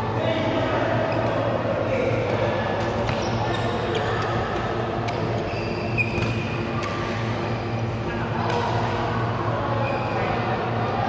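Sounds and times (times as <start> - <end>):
low hall hum: 0.0 - 11.0
shoes squeaking on court: 3.1 - 4.4, 5.1 - 6.8.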